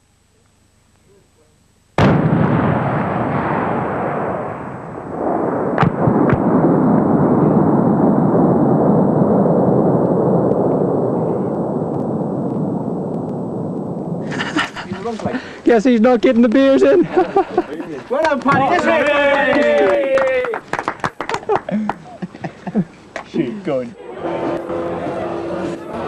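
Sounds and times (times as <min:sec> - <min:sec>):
sharp cracks: 0:02.0 - 0:08.5, 0:09.8 - 0:14.3
loud explosion blast: 0:02.0 - 0:15.5
dense rumble: 0:02.0 - 0:18.2, 0:23.9 - 0:26.0.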